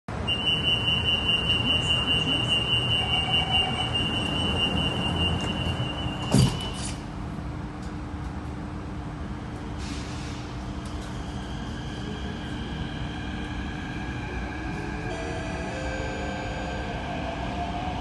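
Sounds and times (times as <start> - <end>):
train low hum: 0.1 - 18.0
high-pitched door warning tone: 0.3 - 7.0
train doors sliding shut: 1.7 - 7.1
doors closing thud: 6.2 - 6.9.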